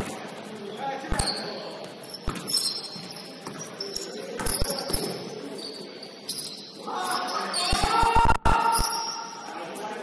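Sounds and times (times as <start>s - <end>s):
shoes squeaking on gym court: 0.0s - 7.8s.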